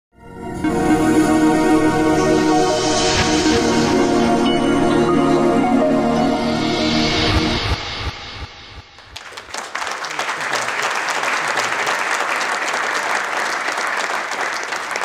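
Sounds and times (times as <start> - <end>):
electronic music: 0.3 - 9.3
audience applauding: 9.0 - 15.0.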